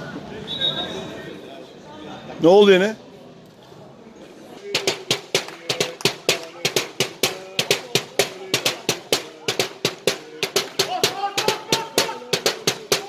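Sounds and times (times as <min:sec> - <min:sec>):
drum beaten in fast rhythm: 0:04.6 - 0:13.0.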